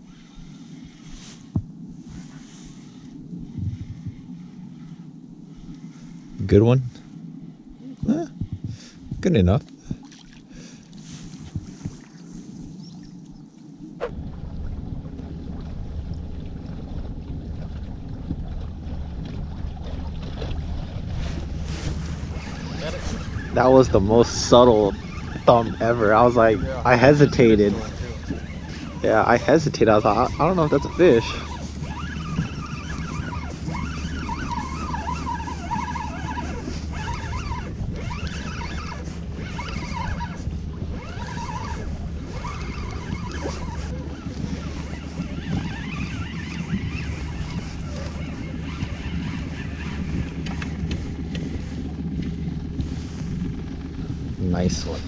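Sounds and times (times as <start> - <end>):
boat motor humming: 0.0 - 55.0
wind rumbling on microphone: 0.0 - 55.0
faint wavering squeals: 21.1 - 55.0.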